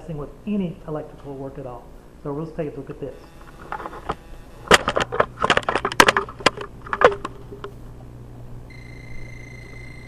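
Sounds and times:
voltage tester high-pitched tone: 0:02.8 - 0:06.1, 0:08.7 - 0:10.0
clicks and knocks: 0:03.6 - 0:07.8.

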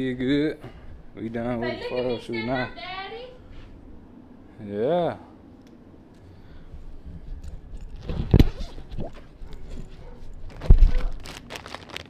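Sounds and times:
camera handling noise: 0:07.4 - 0:11.2.

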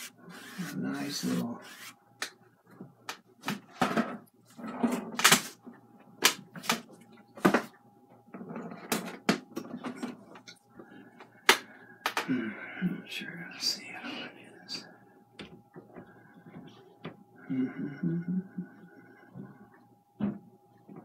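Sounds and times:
brush scrubbing strokes: 0:00.0 - 0:02.0.

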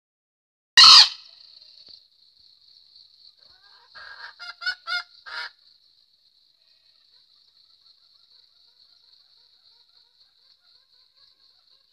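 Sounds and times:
junglefowl calling: 0:00.8 - 0:01.4, 0:03.4 - 0:05.6.

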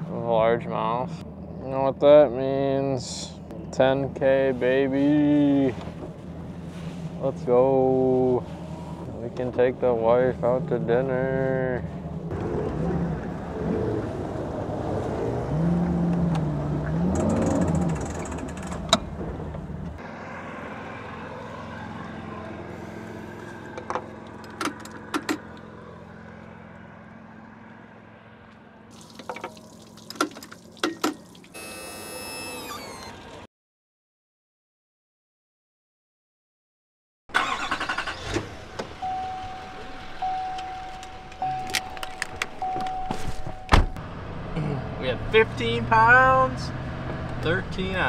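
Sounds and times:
outboard motor rumbling: 0:03.5 - 0:27.2.

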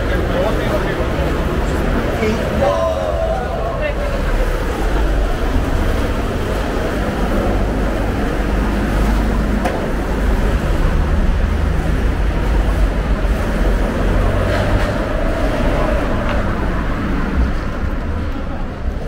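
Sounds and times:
car traffic passing: 0:00.0 - 0:19.0.

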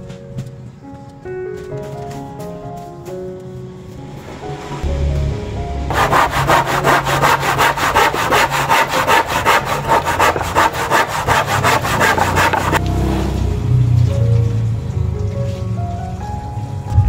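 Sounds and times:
hand saw cutting wood: 0:05.9 - 0:12.8.

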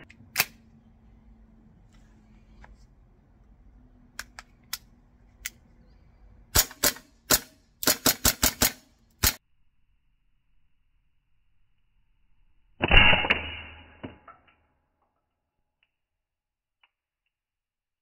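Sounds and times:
airsoft gun shots: 0:06.5 - 0:09.4.

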